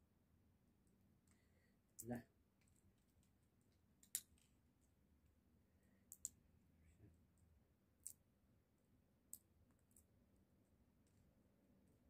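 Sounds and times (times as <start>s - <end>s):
seed shells cracking clicks: 4.0s - 4.5s, 6.1s - 6.4s, 8.0s - 8.2s.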